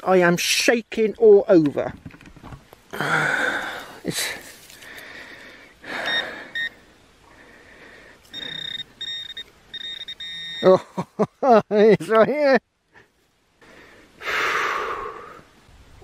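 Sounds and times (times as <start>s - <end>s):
heavy shaky breathing: 2.9s - 9.0s
high metal detector alert tone: 5.9s - 6.8s, 8.3s - 11.0s.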